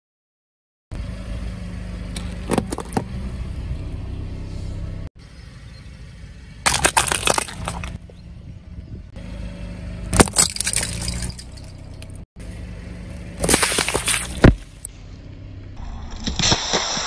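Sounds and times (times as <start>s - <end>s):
car engine running low: 0.9s - 16.4s
rubber toys squashed crackling: 13.4s - 14.7s.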